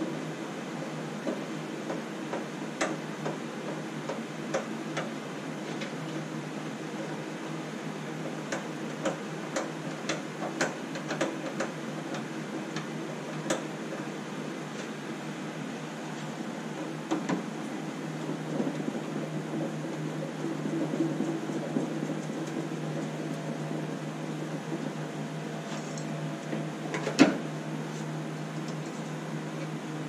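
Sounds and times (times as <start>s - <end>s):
steady background noise: 0.0s - 30.0s.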